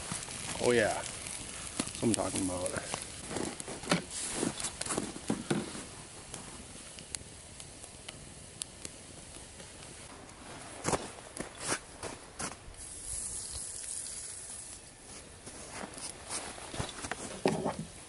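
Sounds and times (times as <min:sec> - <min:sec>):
food sizzling in a skillet: 0:00.0 - 0:05.9, 0:12.8 - 0:14.9
campfire crackling and popping: 0:00.0 - 0:18.0.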